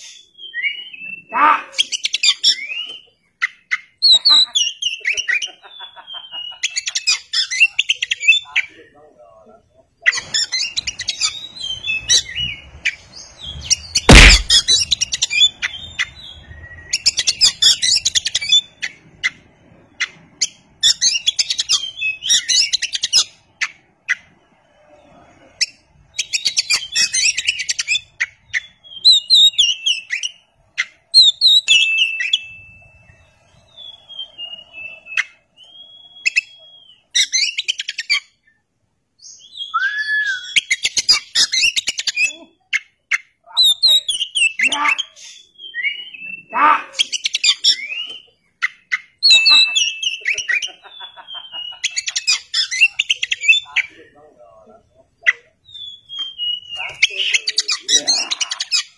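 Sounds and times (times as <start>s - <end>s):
bird singing twittering phrases: 0.0s - 9.2s, 10.0s - 24.6s, 25.6s - 38.6s, 39.2s - 58.9s
sharp knock: 14.1s - 14.9s.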